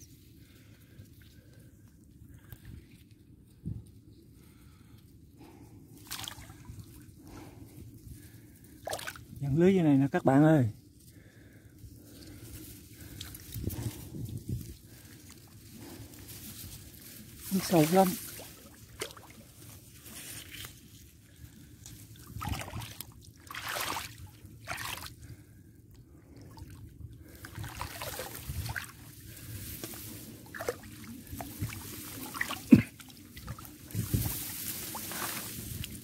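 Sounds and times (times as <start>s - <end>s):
muddy water sloshing and splashing: 5.5s - 9.4s, 14.8s - 36.0s.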